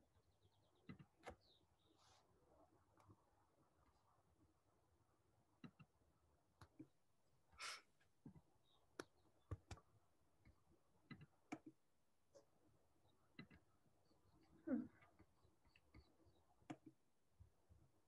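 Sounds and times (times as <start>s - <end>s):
computer mouse clicks: 11.1s - 11.8s, 13.4s - 13.6s.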